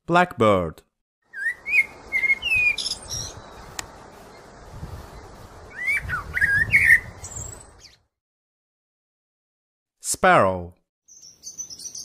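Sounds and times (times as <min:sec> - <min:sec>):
blackbird singing: 0:01.3 - 0:04.5, 0:05.2 - 0:08.0, 0:11.1 - 0:12.0.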